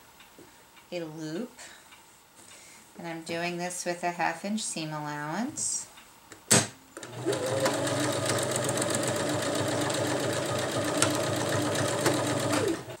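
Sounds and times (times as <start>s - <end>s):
sewing machine stitching: 7.0s - 13.0s.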